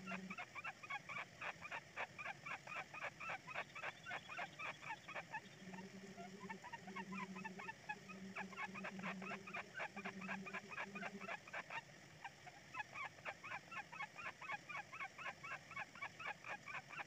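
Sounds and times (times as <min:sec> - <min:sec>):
nestlings giving rasping calls: 0:00.0 - 0:07.8, 0:08.4 - 0:11.8.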